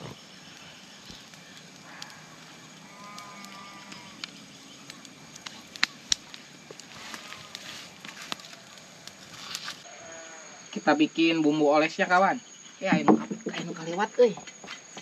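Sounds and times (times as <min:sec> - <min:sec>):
farm animal calling: 0:01.8 - 0:04.3.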